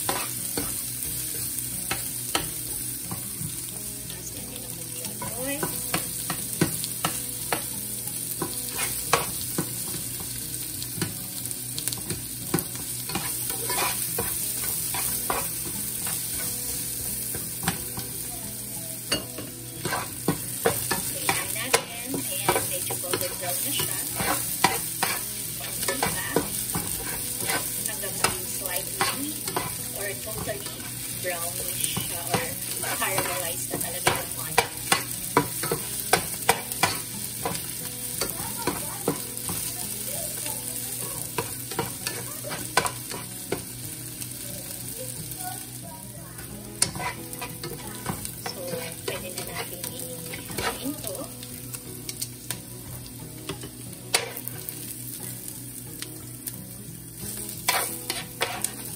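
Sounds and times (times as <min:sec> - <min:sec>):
spatula scraping and tapping pan: 0:00.0 - 0:00.8, 0:05.1 - 0:10.4, 0:11.8 - 0:18.2, 0:19.1 - 0:40.4, 0:41.2 - 0:43.7, 0:46.4 - 0:51.2, 0:53.4 - 0:54.8, 0:57.4 - 0:58.9
onions sizzling in oil: 0:00.0 - 0:58.9.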